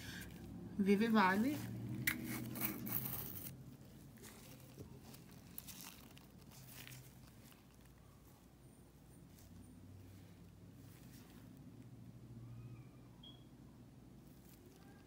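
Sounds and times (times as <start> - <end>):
low steady hum: 0.0 - 15.0
packaging rustling and crinkling: 2.1 - 8.5.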